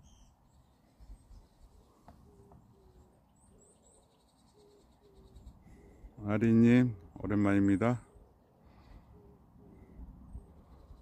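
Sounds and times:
faint outdoor ambience: 0.0 - 11.0.

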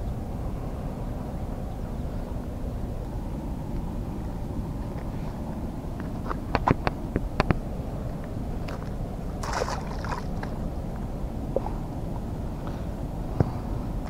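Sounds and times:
low steady rumble: 0.0 - 14.0
fish splashing into water: 8.7 - 10.6.

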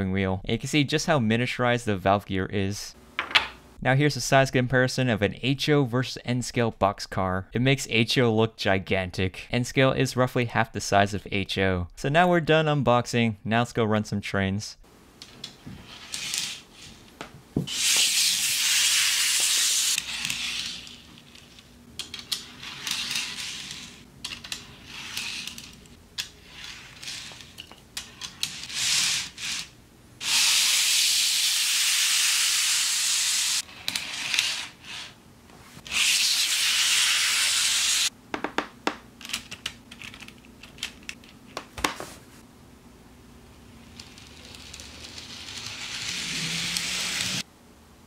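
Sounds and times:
model train wheels hissing on rails: 17.7 - 21.4, 22.3 - 25.7, 28.4 - 35.2, 35.9 - 38.1, 44.4 - 47.4.

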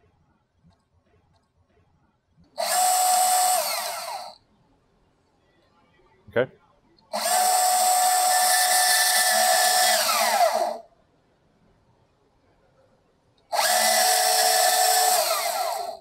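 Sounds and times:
saw spinning down whine: 2.6 - 4.4, 7.2 - 10.8, 13.5 - 16.0
band saw running: 13.6 - 16.0.

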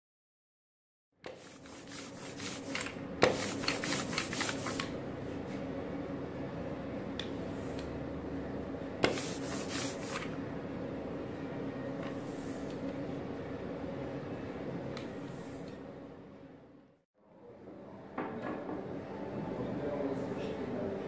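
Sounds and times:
roller rasping through sticky ink: 1.3 - 4.9, 9.0 - 10.3.

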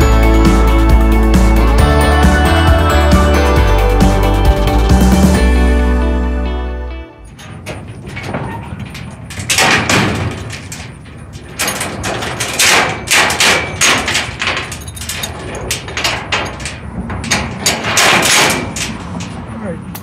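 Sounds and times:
metal clanks and rattles: 7.2 - 20.0.

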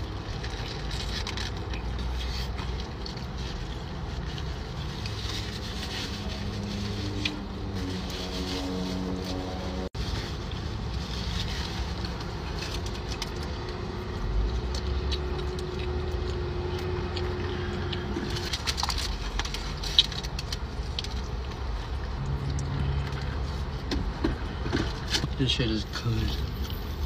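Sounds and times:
low hum inside car: 11.7 - 26.4
chewing: 12.0 - 23.4.

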